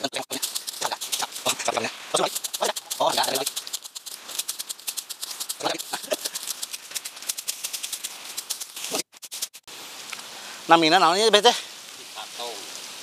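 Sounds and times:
sickle swishing through grass: 0.0s - 10.1s.

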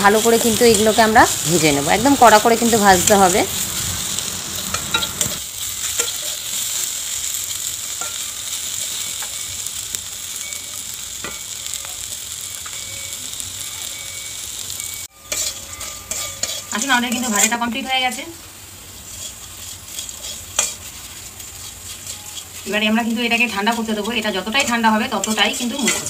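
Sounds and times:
frying sizzle in oil: 0.0s - 26.0s
spatula clicking and scraping: 4.6s - 6.9s, 15.2s - 17.6s, 19.0s - 26.0s.

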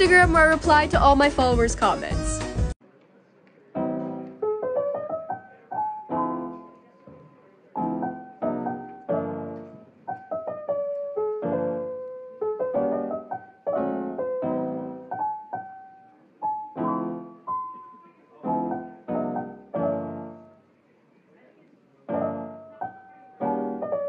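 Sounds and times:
solo piano music: 3.8s - 20.7s, 22.0s - 24.0s.

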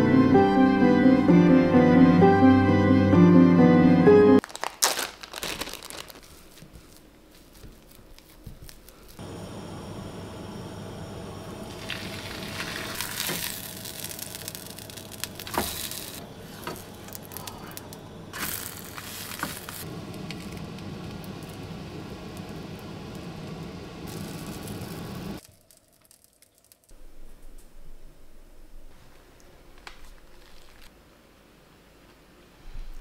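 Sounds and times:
steady low hum: 8.8s - 25.4s
flatbread sizzling in a frying pan: 11.7s - 17.4s, 24.0s - 25.5s.

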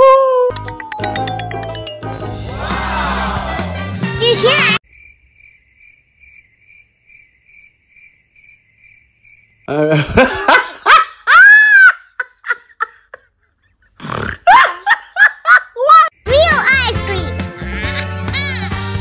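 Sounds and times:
faint cricket chirps: 4.8s - 9.9s.

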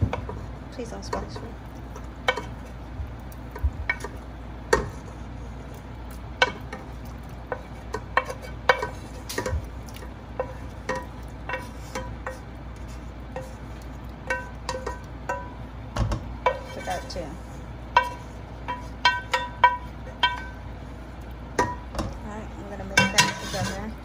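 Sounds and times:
wooden spoon knocking metal pan: 10.4s - 12.4s, 14.2s - 17.2s, 17.9s - 20.6s, 21.6s - 22.2s, 22.8s - 23.8s.

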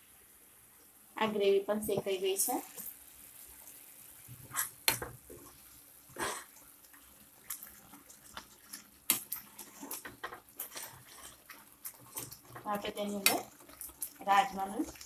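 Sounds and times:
metal spatula scraping a pan: 4.4s - 4.8s, 7.9s - 13.4s.

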